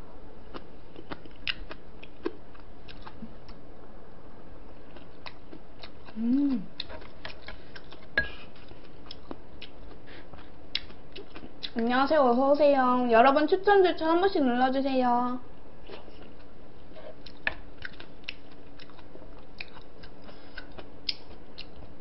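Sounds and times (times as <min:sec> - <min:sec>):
chewing food: 0:00.5 - 0:03.6, 0:04.8 - 0:11.9, 0:15.8 - 0:22.0
person humming: 0:06.1 - 0:06.8.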